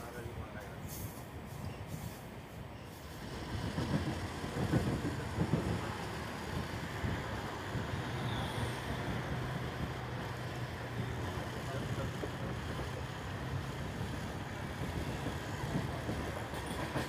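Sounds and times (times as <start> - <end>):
train wheels rumbling on track: 0.0 - 17.0
wind on microphone: 3.2 - 10.3.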